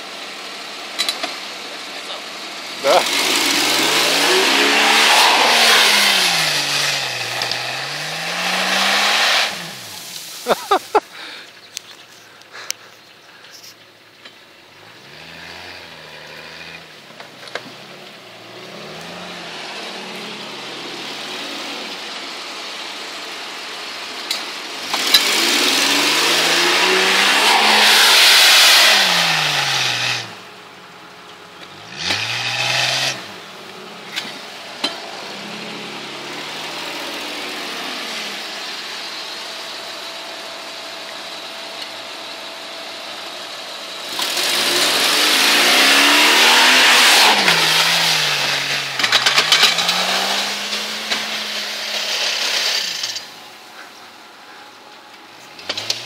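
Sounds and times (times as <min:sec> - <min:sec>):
car engine revving: 0:00.0 - 0:11.3, 0:14.7 - 0:54.7, 0:55.4 - 0:56.0
hiss of sand from spinning tyres: 0:03.0 - 0:11.6, 0:18.5 - 0:30.5, 0:34.3 - 0:56.0.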